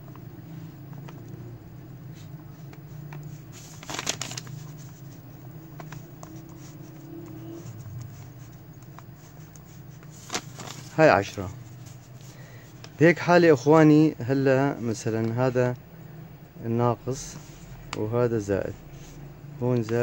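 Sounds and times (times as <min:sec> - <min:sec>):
steady low hum: 0:00.0 - 0:20.0
paper crackling: 0:02.2 - 0:13.3
ballpoint pen scratching paper: 0:03.0 - 0:10.9.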